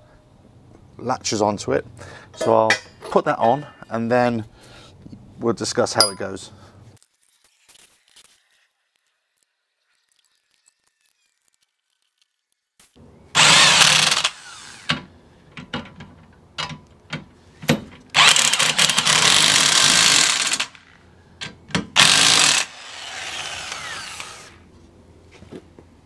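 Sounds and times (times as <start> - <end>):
cordless power drill: 13.4 - 15.1, 18.1 - 20.9, 22.0 - 24.6
metal clicks and knocks: 15.6 - 18.1.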